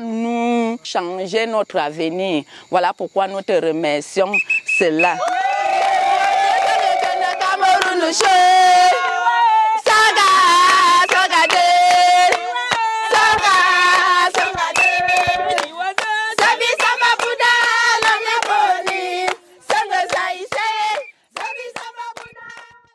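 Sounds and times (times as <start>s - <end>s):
hands clapping: 5.2s - 8.4s, 9.8s - 22.9s
women singing together: 6.6s - 22.9s.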